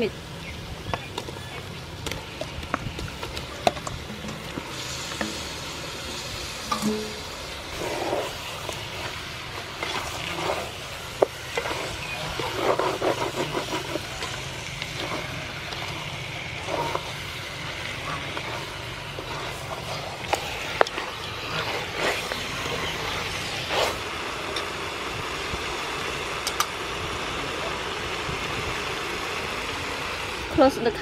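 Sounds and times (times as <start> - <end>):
steady low rumble: 1.7 - 30.6
wooden spatula scraping metal pot: 2.3 - 24.0.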